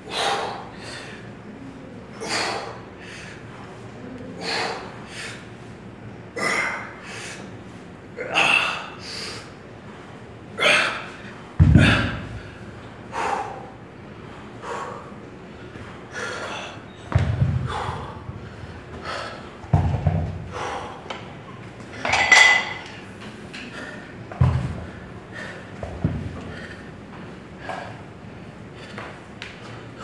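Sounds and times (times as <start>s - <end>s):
person breathing hard: 13.1s - 15.2s, 20.4s - 21.1s, 26.4s - 27.0s.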